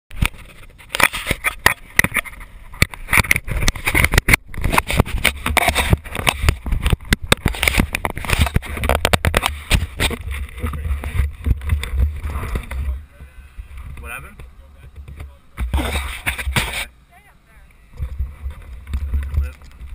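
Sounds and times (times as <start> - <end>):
camera handling knocks and scrapes: 0.2 - 12.9, 13.8 - 16.9.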